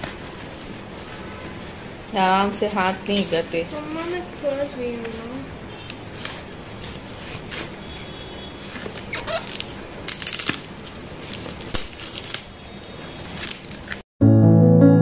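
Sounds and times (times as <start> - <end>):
packing tape peeled off cardboard: 8.7 - 14.0.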